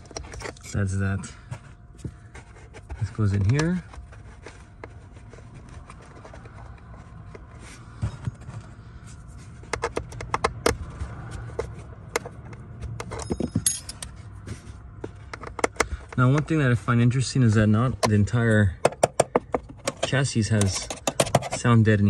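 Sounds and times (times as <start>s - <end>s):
steady low hum: 0.0s - 22.0s
tool clicking and scraping on plastic: 1.5s - 7.5s, 9.6s - 14.2s, 15.0s - 16.6s, 18.8s - 21.8s.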